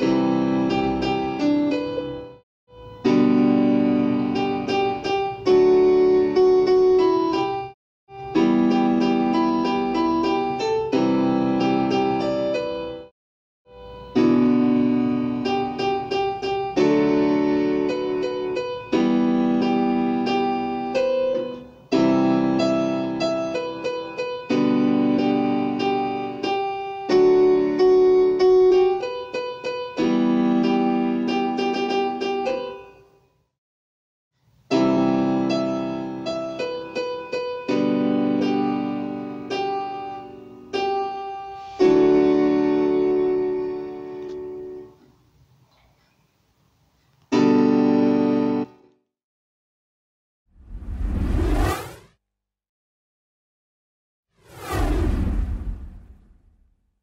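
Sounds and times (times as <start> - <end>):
keyboard piano chords: 0.0 - 13.0, 13.8 - 32.9, 34.7 - 44.9, 47.3 - 48.8.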